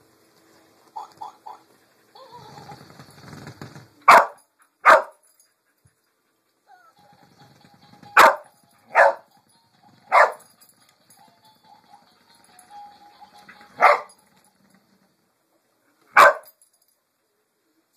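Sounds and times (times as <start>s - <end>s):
dog barking: 4.1s - 5.2s, 8.2s - 9.3s, 10.1s - 10.4s, 13.8s - 14.1s, 16.2s - 16.5s.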